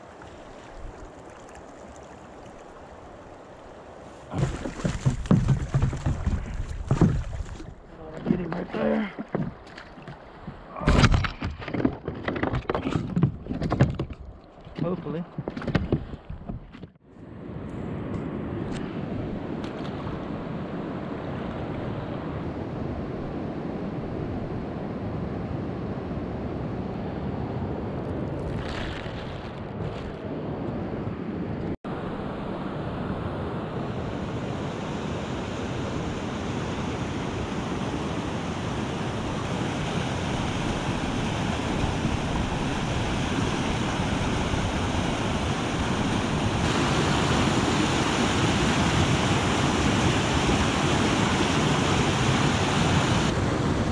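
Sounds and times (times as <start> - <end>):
river water rushing: 0.0 - 10.5, 33.9 - 53.9
wind on microphone: 15.4 - 53.9.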